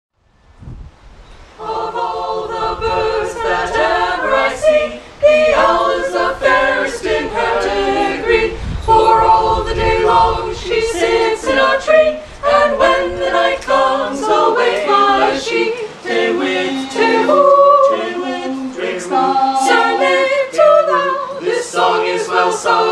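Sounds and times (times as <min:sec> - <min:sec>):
group singing a cappella: 0:01.6 - 0:22.9.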